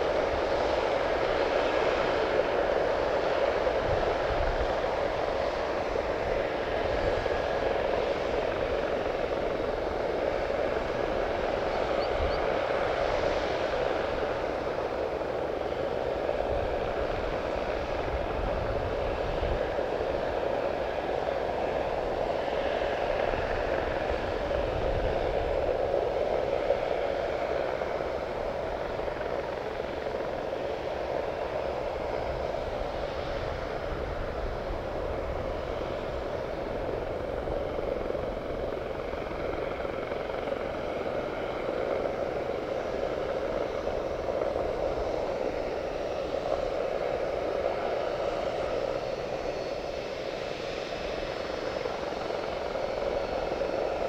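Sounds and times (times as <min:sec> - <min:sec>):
jet engines humming at taxi: 0:00.0 - 0:54.0.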